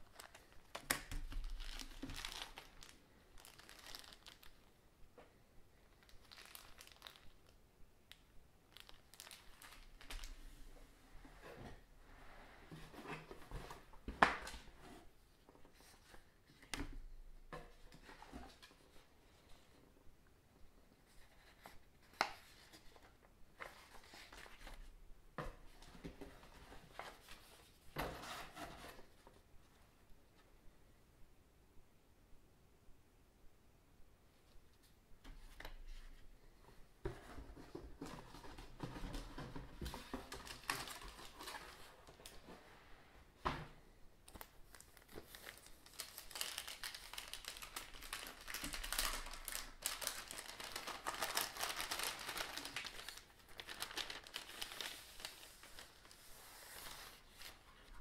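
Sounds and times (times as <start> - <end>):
paper booklets rustling: 0.0 - 4.6, 5.9 - 7.6, 8.7 - 10.5, 44.2 - 58.0
plastic bag crinkling: 1.4 - 4.6, 6.0 - 10.4, 44.3 - 56.1.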